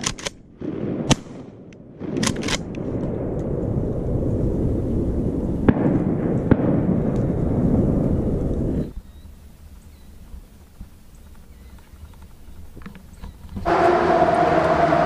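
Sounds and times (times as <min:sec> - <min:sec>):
clicks of gun action: 0:00.0 - 0:00.4, 0:01.1 - 0:02.8
shotgun shot: 0:00.0 - 0:02.8, 0:05.7 - 0:07.4
low rushing noise: 0:00.6 - 0:10.6, 0:13.6 - 0:15.0.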